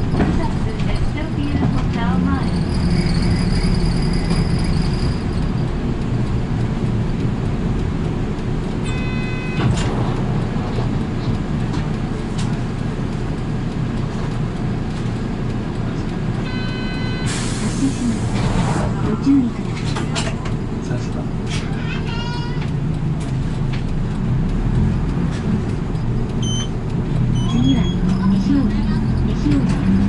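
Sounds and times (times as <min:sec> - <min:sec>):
bus engine and road rumble: 0:00.0 - 0:30.0
short electronic beep: 0:08.9 - 0:09.8, 0:16.5 - 0:17.4.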